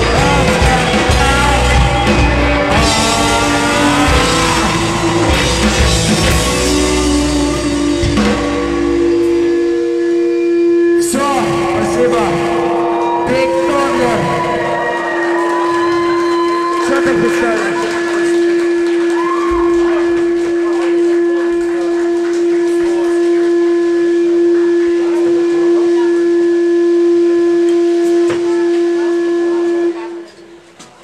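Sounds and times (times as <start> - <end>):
live band playing: 0.0 - 24.8
guitar amplifier feedback tone: 0.0 - 31.0.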